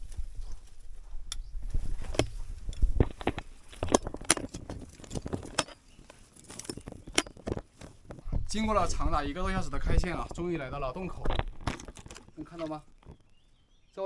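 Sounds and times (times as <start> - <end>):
climbing gear clinking: 1.3 - 8.2.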